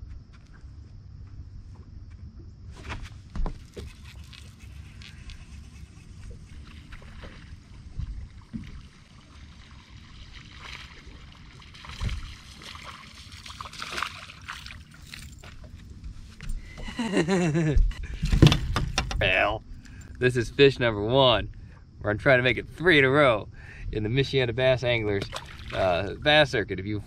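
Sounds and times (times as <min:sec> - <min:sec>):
water lapping against boat hull: 0:03.5 - 0:17.0, 0:25.0 - 0:26.2
fish splashing: 0:03.8 - 0:15.7, 0:25.3 - 0:25.8
wind rumble on microphone: 0:05.1 - 0:09.0, 0:11.8 - 0:12.5
knocks on boat: 0:17.8 - 0:19.2.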